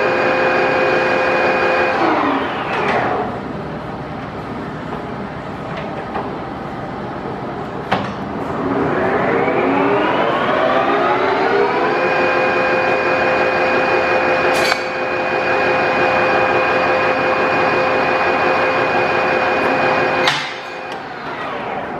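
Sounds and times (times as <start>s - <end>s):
lathe gear whine: 0.0s - 3.5s, 8.4s - 21.9s.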